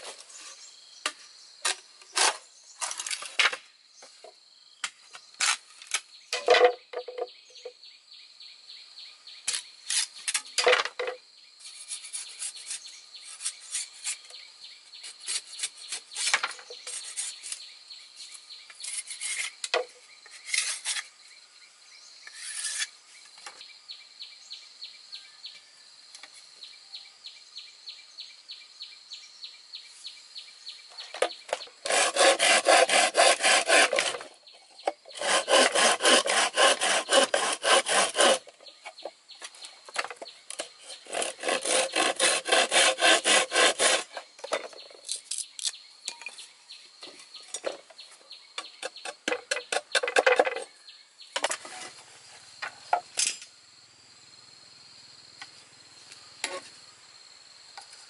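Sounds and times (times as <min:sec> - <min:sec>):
insects trilling: 0:00.0 - 0:58.0
knife scraping bamboo: 0:01.6 - 0:03.6, 0:05.4 - 0:06.5, 0:09.5 - 0:10.9, 0:11.6 - 0:21.2, 0:22.3 - 0:23.0, 0:31.5 - 0:39.0, 0:39.9 - 0:45.8.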